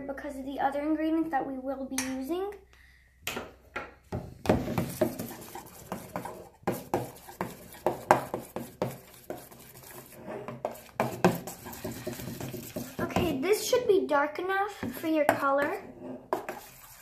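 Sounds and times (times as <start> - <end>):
metal spoon scraping steel bowl: 9.1 - 13.1.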